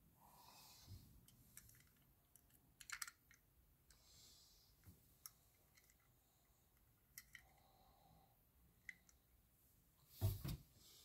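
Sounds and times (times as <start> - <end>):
toy car clicking in fingers: 1.6 - 3.4.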